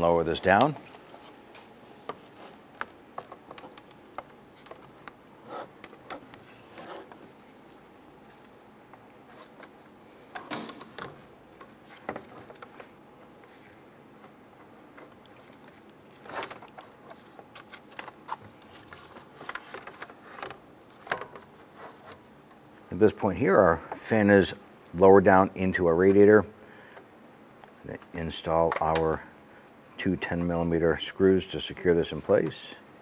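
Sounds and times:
plastic clicks and scrapes: 15.0 - 22.2.

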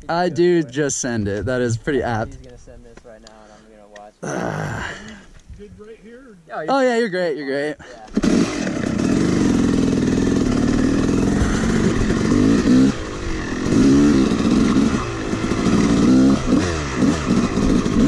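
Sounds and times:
two-stroke dirt bike engine revving: 7.9 - 18.0.

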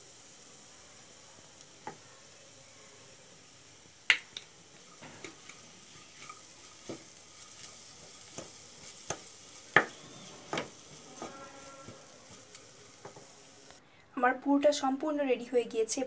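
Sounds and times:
vegetables sizzling: 0.0 - 13.8
wooden spatula scraping pan: 5.0 - 13.3.

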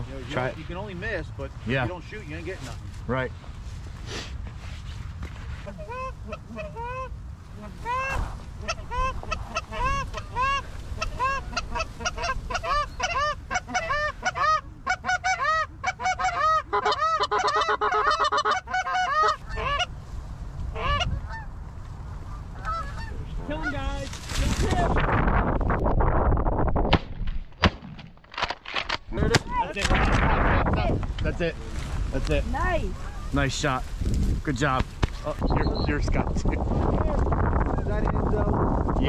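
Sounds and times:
geese honking: 5.6 - 20.0, 20.6 - 21.6, 22.2 - 24.0, 32.6 - 33.5.

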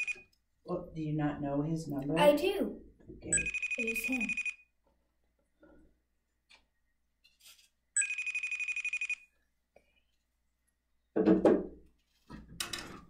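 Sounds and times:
electronic telephone ring: 0.0 - 0.3, 3.3 - 4.7, 8.0 - 9.4.

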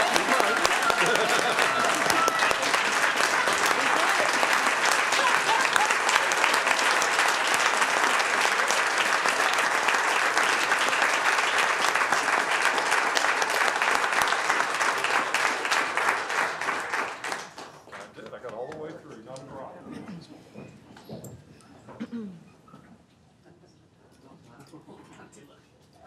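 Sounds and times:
crowd applauding: 0.0 - 18.9.

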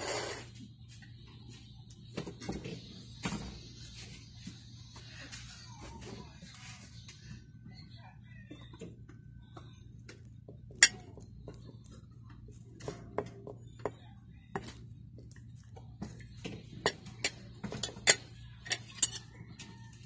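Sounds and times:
cutlery clinking on ceramic plate: 10.8 - 11.2, 16.8 - 19.7.

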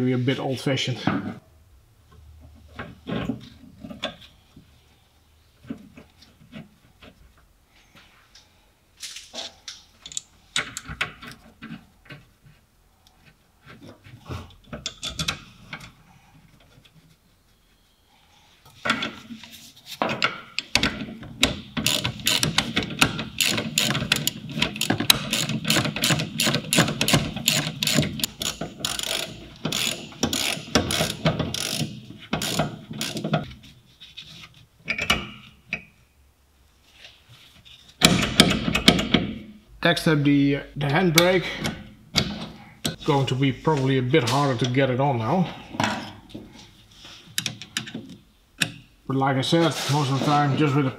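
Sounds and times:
ratchet wrench clicking: 21.8 - 33.2.

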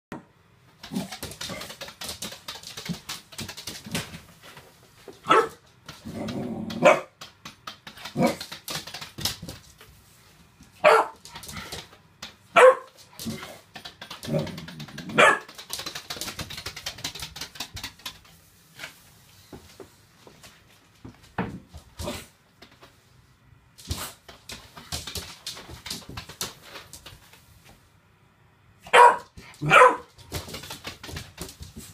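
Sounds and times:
puppy barking: 5.3 - 5.6, 10.8 - 11.2, 12.6 - 13.0, 15.1 - 15.5, 28.8 - 30.1
puppy growling: 6.0 - 6.9, 13.2 - 15.2.

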